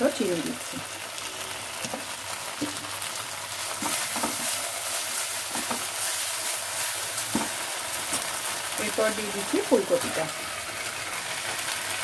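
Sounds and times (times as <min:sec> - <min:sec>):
spice paste sizzling in pan: 0:00.0 - 0:12.0
spatula scraping pan: 0:03.6 - 0:08.5.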